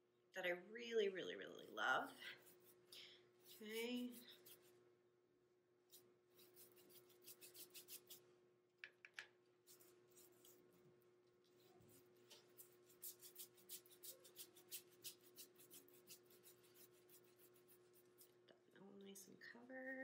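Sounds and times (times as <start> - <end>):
faint steady hum: 0.0 - 20.0
paintbrush swishing on paper: 1.6 - 4.8, 5.9 - 8.3, 9.6 - 10.7, 11.4 - 18.4.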